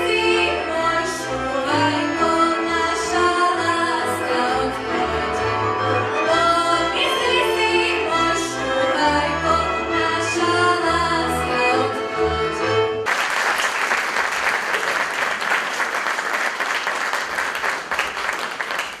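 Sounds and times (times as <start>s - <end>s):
woman singing: 0.0s - 5.4s, 6.2s - 12.2s
folk band playing: 0.0s - 13.1s
audience applause: 13.0s - 19.0s.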